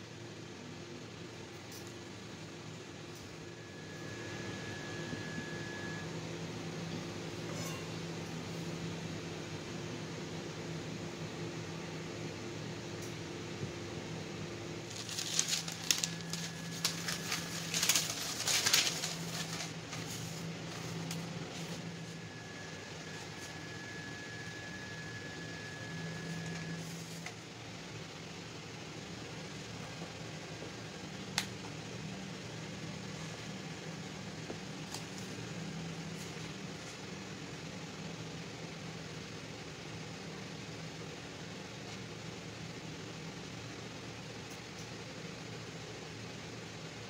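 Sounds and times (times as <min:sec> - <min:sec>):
low fan-like hum: 0:00.0 - 0:47.0
baking paper crinkling: 0:14.8 - 0:22.1.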